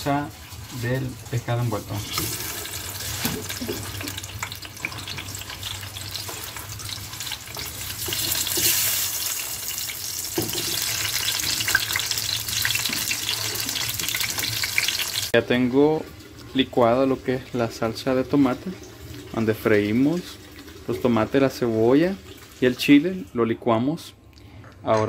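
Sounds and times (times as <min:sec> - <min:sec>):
vegetables sizzling in hot oil: 0:00.0 - 0:15.4.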